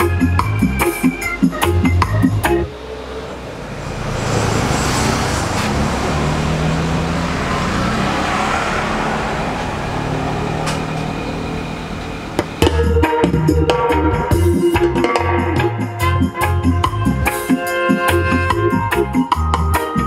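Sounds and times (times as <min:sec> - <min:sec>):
music from a speaker: 0:00.0 - 0:02.7, 0:12.6 - 0:20.0
road traffic rumble: 0:00.0 - 0:20.0.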